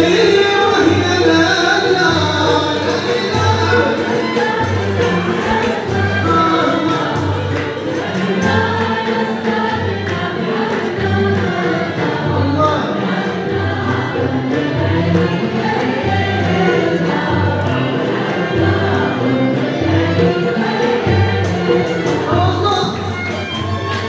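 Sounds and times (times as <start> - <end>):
men singing together: 0.0 - 24.0.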